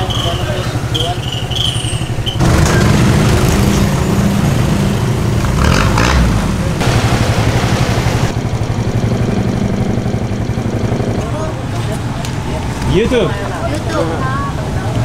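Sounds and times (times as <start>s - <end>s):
engine running with low throb: 2.2s - 13.3s.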